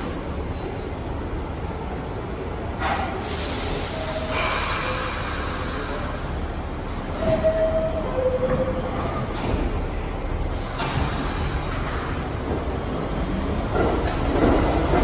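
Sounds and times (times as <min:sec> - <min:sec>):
subway train rumbling: 0:00.0 - 0:15.0
train squealing tones: 0:07.1 - 0:09.2.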